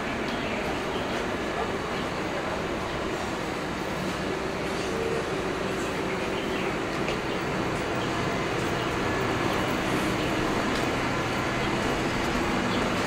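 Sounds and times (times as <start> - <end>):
road noise: 0.0 - 13.0
vehicle engine drone: 4.6 - 13.0.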